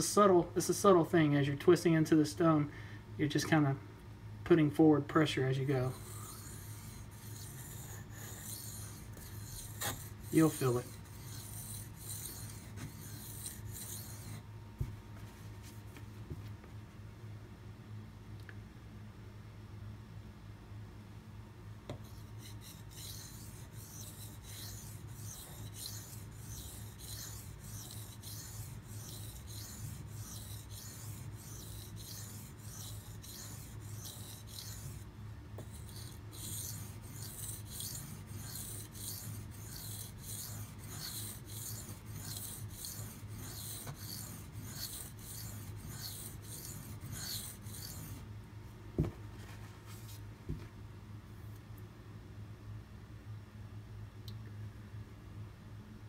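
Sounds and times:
knife scraping on whetstone: 5.6 - 14.4, 22.0 - 48.2.

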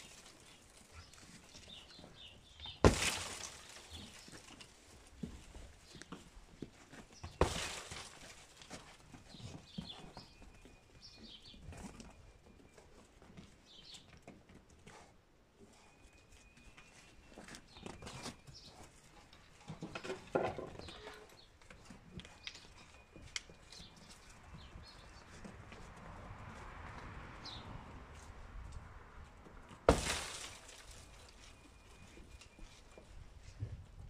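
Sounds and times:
small birds chirping: 0.0 - 6.3, 8.2 - 14.3, 15.7 - 20.1, 20.8 - 25.8
hoof steps and knocks: 0.0 - 34.0.

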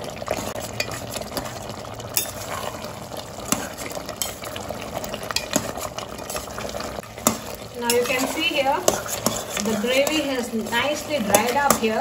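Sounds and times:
food sizzling in a pot: 0.0 - 12.0
ladle stirring and scraping: 0.0 - 12.0
ladle clacking against pot: 0.6 - 2.5, 5.2 - 6.5, 7.2 - 12.0.

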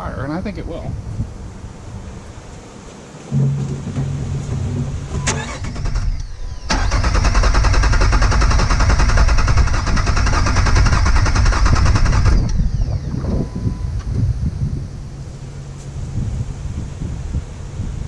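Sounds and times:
starter cranking engine: 5.2 - 13.4.

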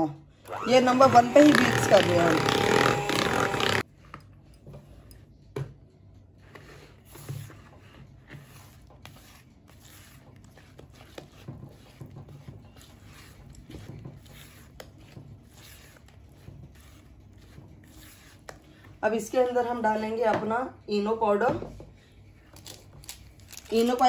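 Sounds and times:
electric hand mixer beating: 0.5 - 3.8
spatula squelching in batter: 6.5 - 19.1.

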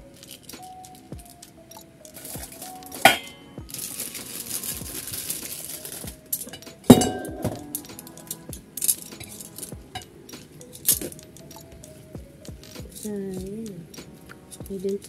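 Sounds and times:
plastic sachet rustling: 3.7 - 6.6
utensils knocking metal pot: 6.4 - 8.0.

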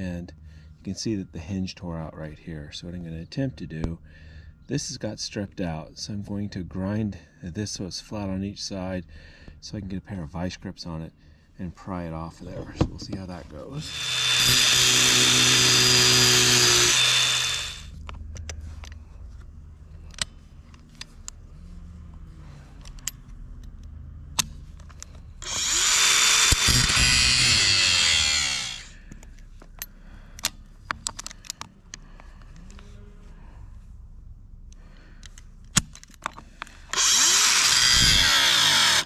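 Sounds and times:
angle grinder grinding metal: 13.6 - 17.9, 25.4 - 29.0, 36.9 - 39.0.

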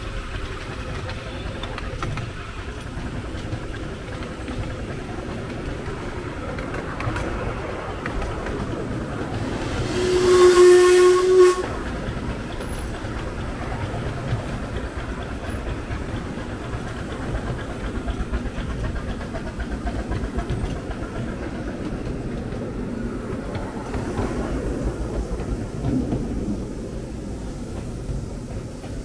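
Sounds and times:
train wheels rumbling on rails: 0.0 - 29.0
steam locomotive whistle: 9.8 - 12.0.

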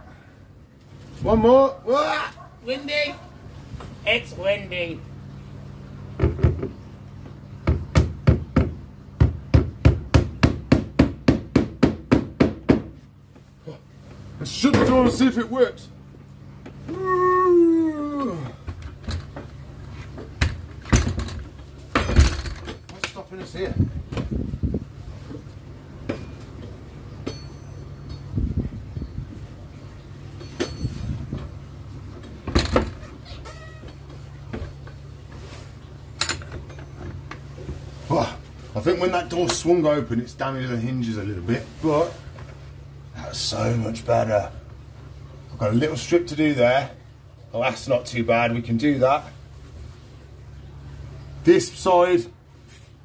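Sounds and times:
hammer striking wooden door frame: 7.6 - 13.0.

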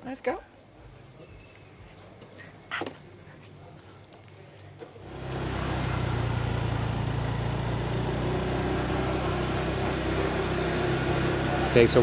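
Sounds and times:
motorcycle engine running: 5.0 - 12.0.

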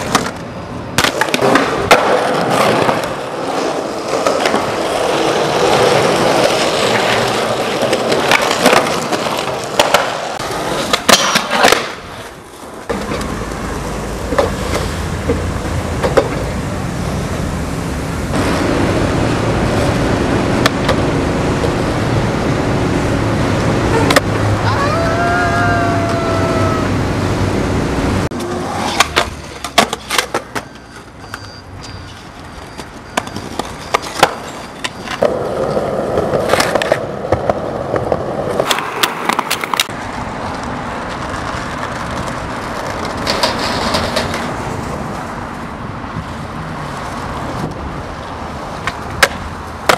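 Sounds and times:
skateboard wooden clacks: 0.0 - 13.5, 14.2 - 16.5, 28.3 - 31.0, 32.7 - 45.6, 48.8 - 49.9
skateboard wheels rolling on pavement: 0.0 - 49.9
street noise: 0.0 - 49.9
skateboard wheel squeal: 23.9 - 27.0, 28.4 - 36.8.

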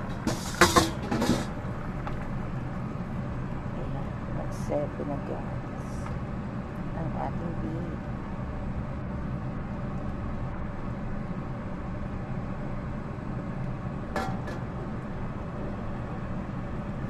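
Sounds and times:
pot of soup boiling: 0.0 - 6.9.

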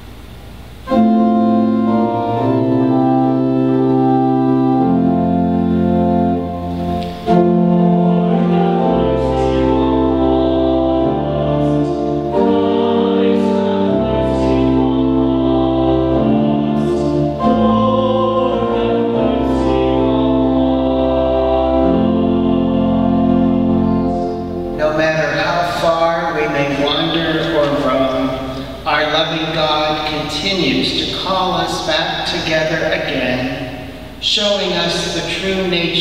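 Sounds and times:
church organ chords: 0.0 - 36.0
voices singing: 0.9 - 33.5.

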